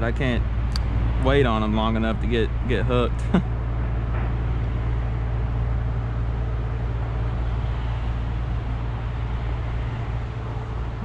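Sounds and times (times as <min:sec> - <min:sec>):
road traffic rumble: 0:00.0 - 0:11.0.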